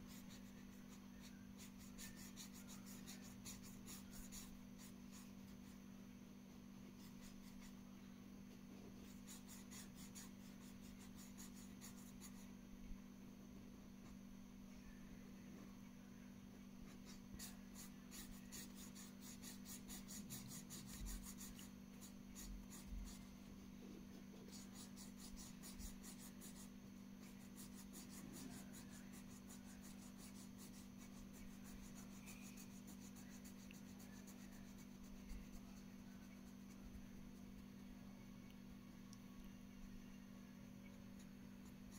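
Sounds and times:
marker scratching on paper: 0.0 - 5.8, 7.0 - 7.8, 9.0 - 12.5, 16.8 - 23.3, 24.4 - 37.4
faint low hum: 0.0 - 41.9.

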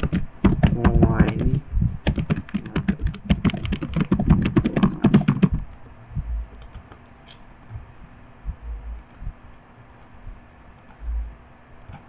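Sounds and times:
keyboard typing: 0.0 - 7.8.

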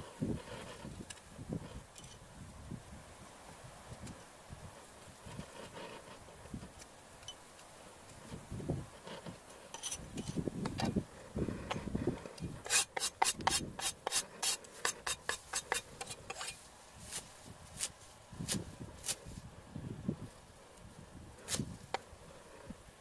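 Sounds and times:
knife scraping wooden board: 9.1 - 10.4, 12.6 - 16.6.

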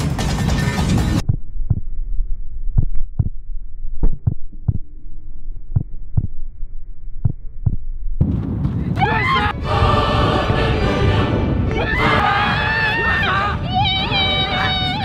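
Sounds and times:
heartbeat thumps: 0.0 - 2.0, 2.7 - 3.4, 4.0 - 4.9, 5.7 - 6.5, 7.2 - 9.1
dull muffled hum: 0.0 - 15.0.

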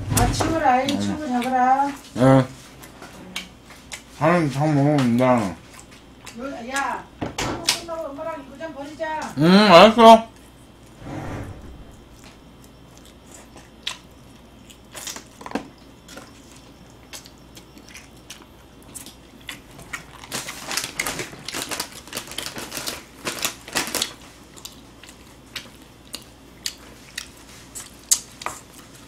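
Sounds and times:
crunching fried chicken: 12.5 - 29.0.

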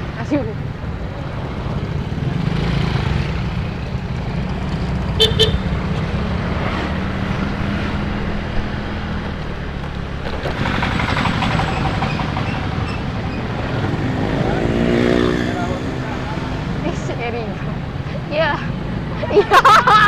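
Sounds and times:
scooter engine and wind rumble: 0.0 - 20.0
horn toots: 5.1 - 5.7.

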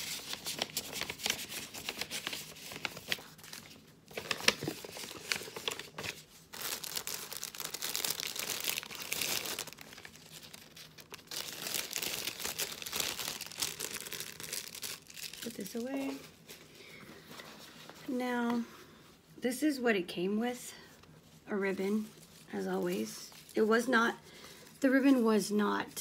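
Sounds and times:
paper rustling: 0.0 - 16.6
plastic bag crinkling: 0.0 - 16.6.

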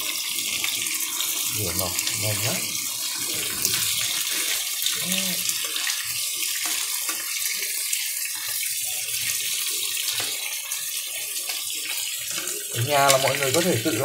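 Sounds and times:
pork sizzling in oil: 0.0 - 14.0
chopsticks turning skewers: 12.3 - 14.0.

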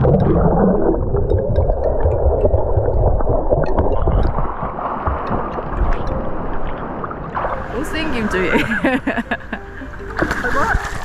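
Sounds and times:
underwater churning and gurgling: 0.0 - 7.8.

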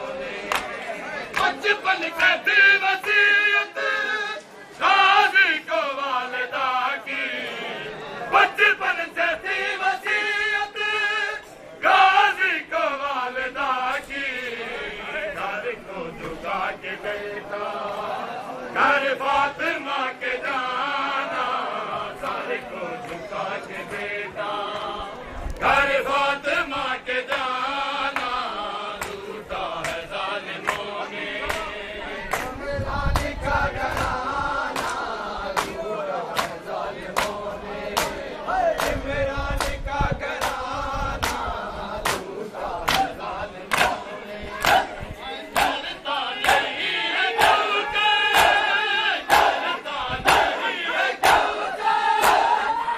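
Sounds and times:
men chanting a lament: 0.0 - 52.9
rhythmic chest-beating slaps: 0.3 - 3.3, 15.2 - 17.2, 20.4 - 24.9, 25.6 - 52.8
hands slapping bare chests: 33.9 - 35.0, 35.6 - 37.4, 40.4 - 40.6, 41.2 - 41.4, 42.0 - 43.1, 43.7 - 44.0, 45.6 - 45.8, 52.2 - 52.5.

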